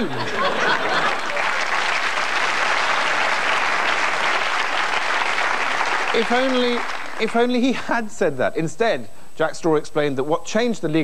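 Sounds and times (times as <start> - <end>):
audience applauding: 0.4 - 7.7.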